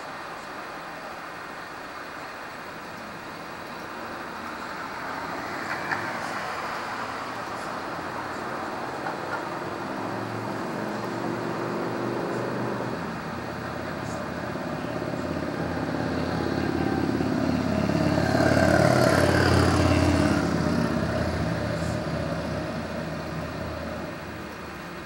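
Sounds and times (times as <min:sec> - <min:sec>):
vehicle passing by: 0:04.8 - 0:24.7.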